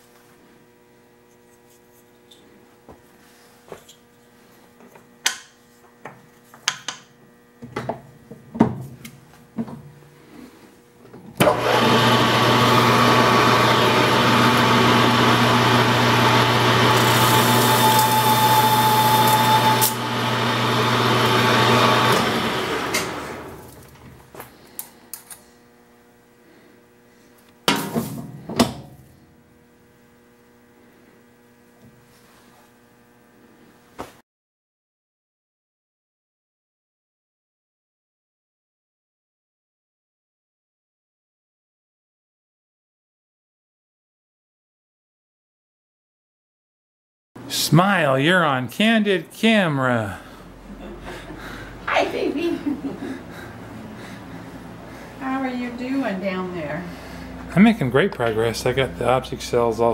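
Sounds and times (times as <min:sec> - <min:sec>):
metal lathe humming: 0:11.4 - 0:24.0
hiss of lathe cutting: 0:14.3 - 0:23.5.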